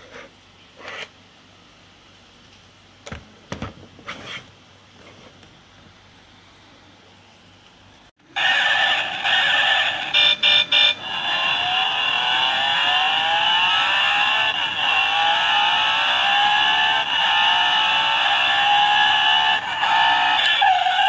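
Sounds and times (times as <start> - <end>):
recorded racing car engine revving: 8.4 - 21.0.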